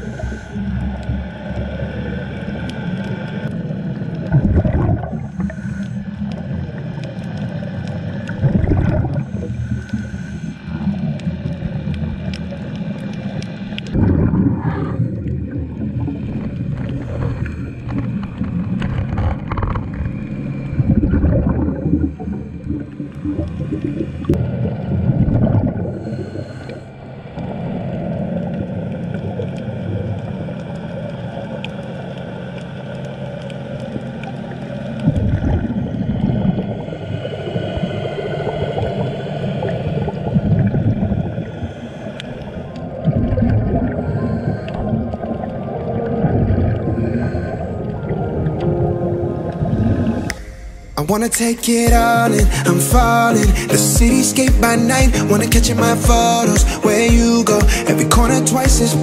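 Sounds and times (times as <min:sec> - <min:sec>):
regulator inhale hiss: 0:00.0 - 0:00.9, 0:05.2 - 0:06.4, 0:09.2 - 0:11.1, 0:25.9 - 0:27.0, 0:41.4 - 0:42.8, 0:52.4 - 0:52.9, 0:53.5 - 0:54.3, 0:57.7 - 0:57.9
exhaled bubbles rushing: 0:00.0 - 0:59.0
low underwater hum: 0:00.0 - 0:59.0.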